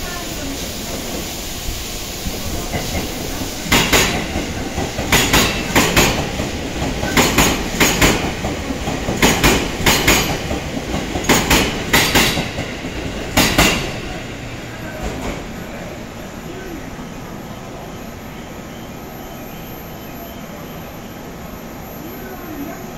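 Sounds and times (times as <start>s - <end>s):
train running rumble: 0.0s - 19.6s
train wheels clicking over rail joint: 2.7s - 14.0s.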